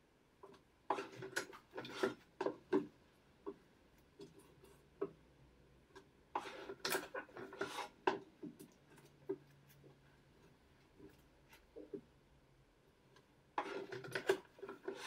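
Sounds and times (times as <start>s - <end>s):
rubbing and scraping on board: 0.9s - 2.9s, 6.4s - 8.2s, 13.6s - 15.0s.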